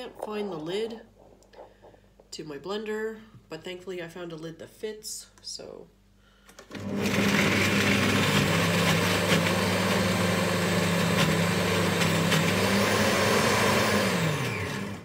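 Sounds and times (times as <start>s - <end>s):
blender motor whirring: 6.6s - 15.0s.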